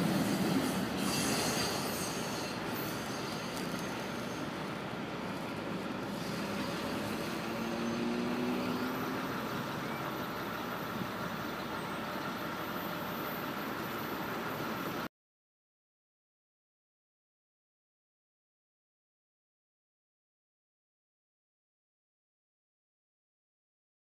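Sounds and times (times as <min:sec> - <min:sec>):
road traffic: 0:00.0 - 0:15.1
vehicle engine humming: 0:00.0 - 0:15.1.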